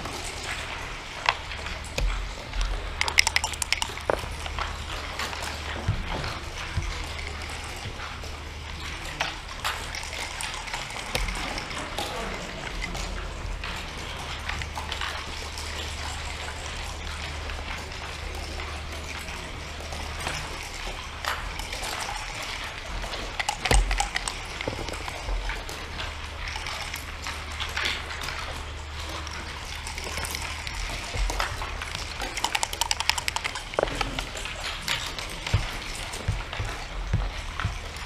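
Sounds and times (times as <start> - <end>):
steady low hum: 0.0 - 38.0
checkers and dice clicking on board: 1.2 - 7.8, 21.3 - 28.4, 29.0 - 38.0.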